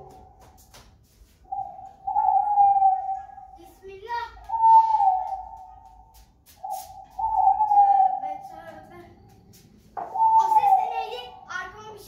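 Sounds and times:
whistle-like melody music: 4.6 - 6.0.

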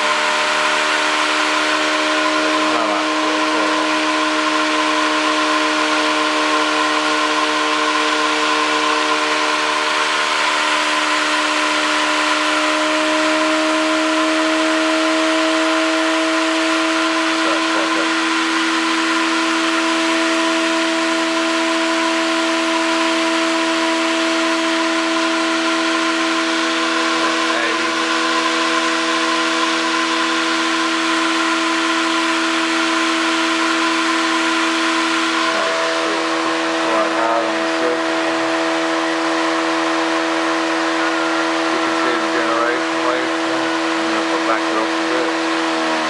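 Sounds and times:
motor whine: 0.0 - 46.0.

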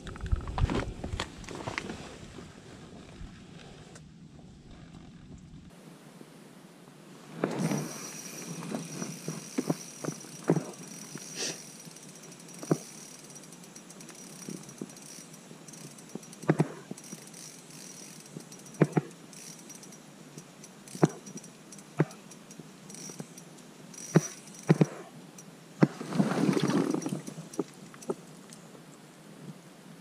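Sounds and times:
clothing and gear rustling: 0.6 - 3.8, 7.3 - 13.5, 25.8 - 28.2.

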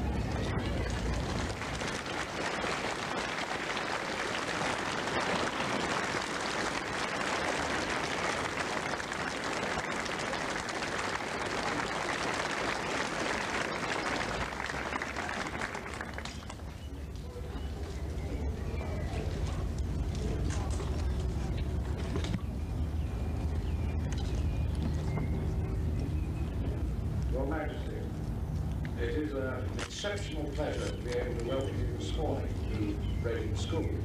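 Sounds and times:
crowd applause: 0.0 - 16.9.

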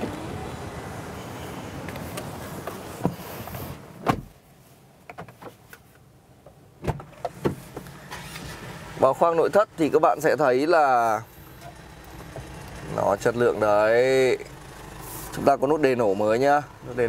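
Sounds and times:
outdoor background noise: 0.0 - 17.0
car door shutting: 1.8 - 4.4, 6.8 - 8.6.

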